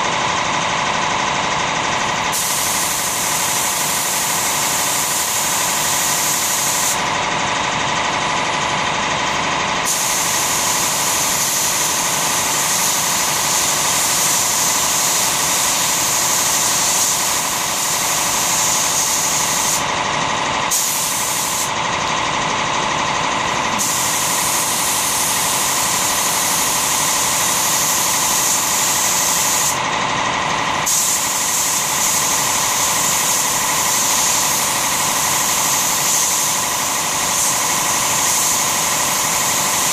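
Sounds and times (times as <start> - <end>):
steady machine hum: 0.0 - 39.9
spray gun hissing: 2.3 - 7.1, 9.8 - 19.9, 20.7 - 21.8, 23.7 - 29.8, 30.8 - 39.9.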